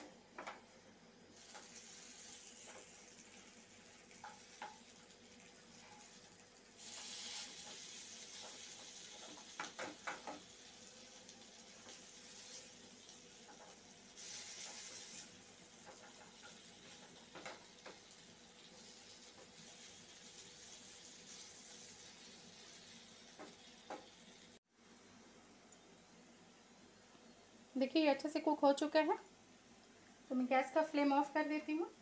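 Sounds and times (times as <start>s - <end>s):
potato slices sizzling in oil: 0.3s - 24.6s
wooden spatula scraping a pan: 6.8s - 10.4s, 13.5s - 18.0s.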